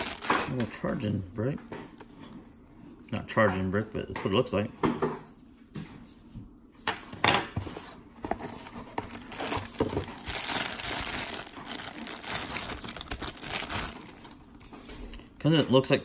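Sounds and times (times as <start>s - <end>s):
plastic bag crinkling: 0.0s - 0.8s, 8.3s - 14.6s.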